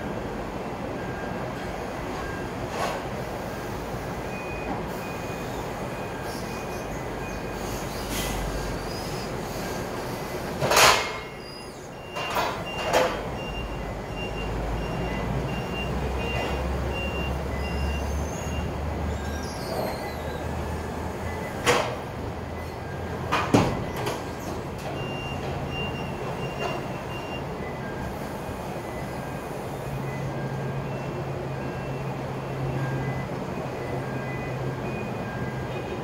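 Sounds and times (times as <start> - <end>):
forklift warning alarm beeping: 0.0 - 7.7, 9.1 - 36.0.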